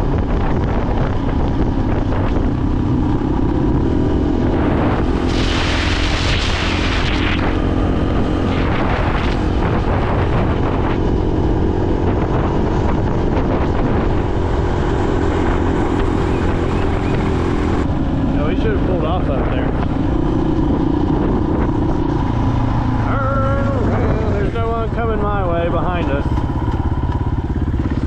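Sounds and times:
motorcycle engine running: 0:00.0 - 0:28.0
wind rumble on microphone: 0:00.0 - 0:28.0
hissing rush: 0:04.5 - 0:10.6.

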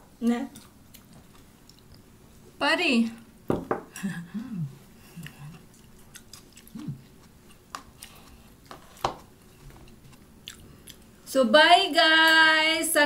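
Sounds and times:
quiet chewing: 0:00.5 - 0:02.1, 0:03.9 - 0:11.3.

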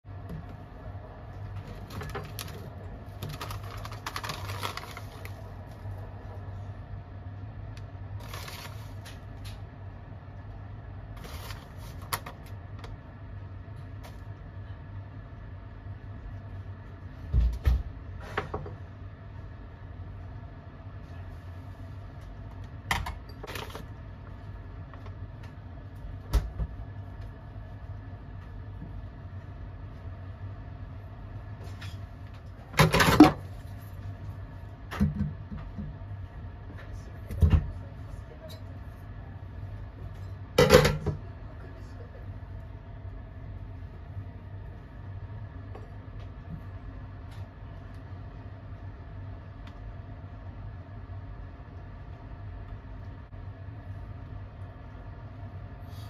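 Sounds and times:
steady low hum: 0:00.0 - 0:56.0
foil pouches crinkling: 0:01.8 - 0:05.5, 0:08.2 - 0:09.1.

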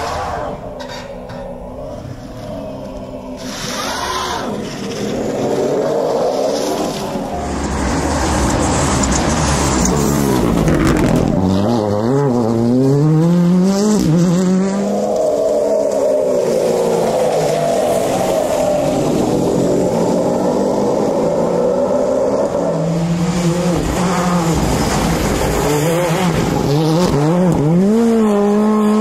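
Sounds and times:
rally car engine revving: 0:01.8 - 0:29.0
gravel scattering under tyres: 0:02.8 - 0:11.6
electric car whine: 0:14.0 - 0:27.7.

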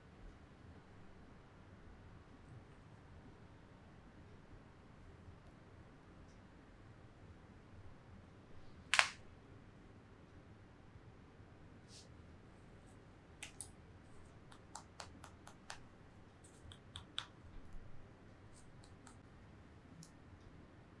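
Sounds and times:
light sharp clicks and taps: 0:13.4 - 0:19.3, 0:20.0 - 0:20.5.

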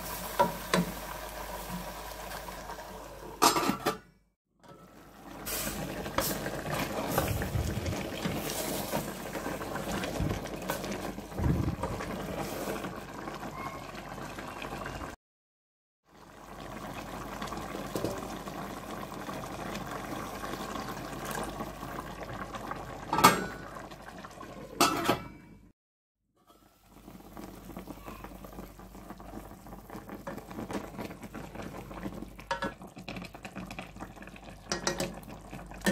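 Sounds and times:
broth simmering in a pot: 0:00.0 - 0:03.4, 0:04.6 - 0:15.2, 0:16.0 - 0:24.8, 0:26.4 - 0:35.9
metal lid clinking on pot: 0:24.8 - 0:25.4.

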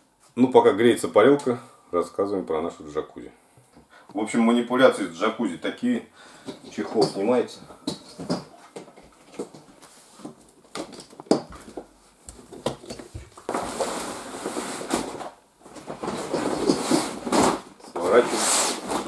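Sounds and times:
cover rustling: 0:07.9 - 0:19.0.

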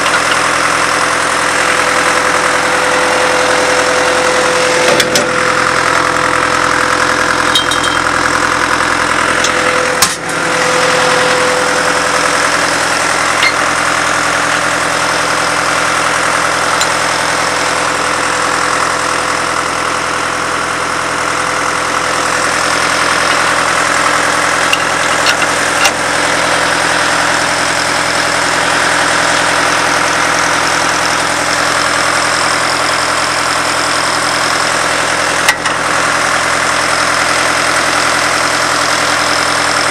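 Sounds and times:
drill rig engine running: 0:00.0 - 0:39.9.

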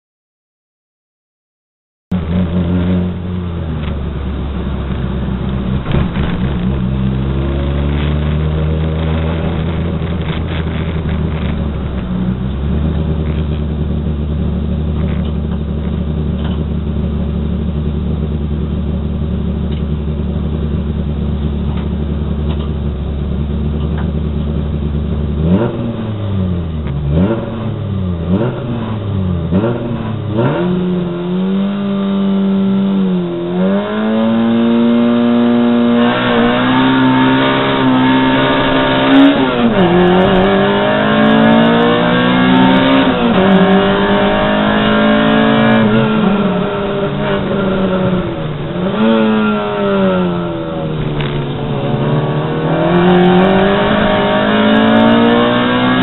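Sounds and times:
engine throttle blips: 0:02.1 - 0:31.1, 0:33.2 - 0:56.0
race car engine idling: 0:03.1 - 0:07.3, 0:08.9 - 0:25.5, 0:45.8 - 0:52.8.

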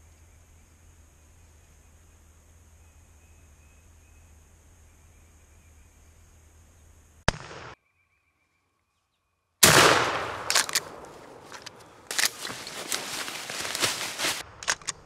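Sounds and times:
shotgun blasts: 0:07.3 - 0:07.8, 0:09.6 - 0:11.4
crackles and thumps: 0:10.0 - 0:15.0.

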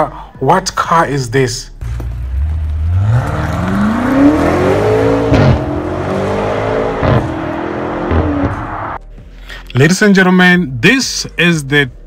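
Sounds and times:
car engine accelerating hard: 0:01.8 - 0:09.0.

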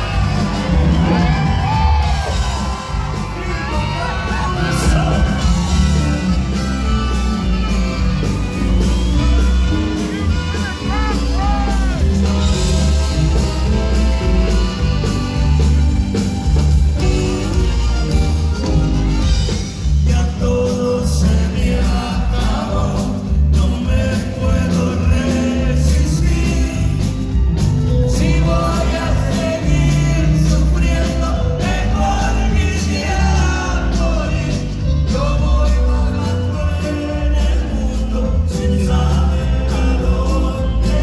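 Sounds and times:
man singing: 0:00.0 - 0:15.9, 0:19.7 - 0:41.0
saxophone: 0:00.0 - 0:20.0
live band playing: 0:00.0 - 0:41.0.

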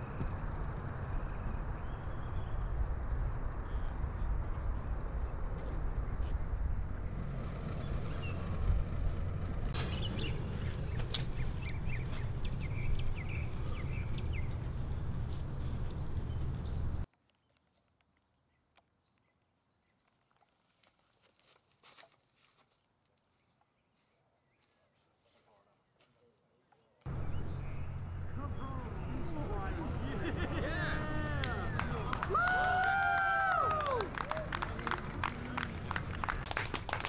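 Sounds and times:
low outdoor rumble: 0:00.0 - 0:17.1, 0:27.1 - 0:37.0
small birds chirping: 0:07.8 - 0:08.8, 0:09.8 - 0:20.4, 0:25.7 - 0:30.2.

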